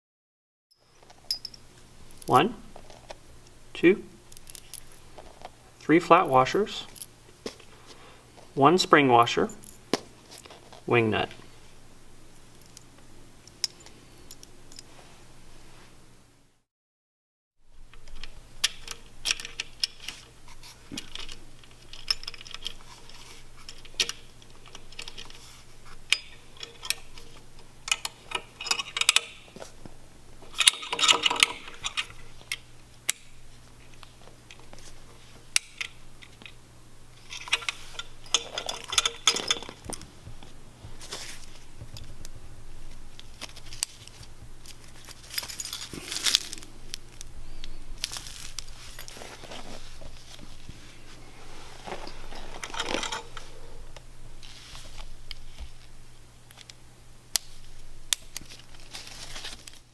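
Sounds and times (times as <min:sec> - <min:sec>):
metal hardware clinking: 0:00.7 - 0:02.4, 0:17.9 - 0:29.7, 0:30.5 - 0:34.7, 0:37.2 - 0:40.5, 0:41.2 - 0:50.5, 0:51.8 - 0:55.5
faint steady hum: 0:00.8 - 0:16.6, 0:17.6 - 0:59.9
rustling: 0:37.2 - 0:56.0, 0:57.4 - 0:59.9.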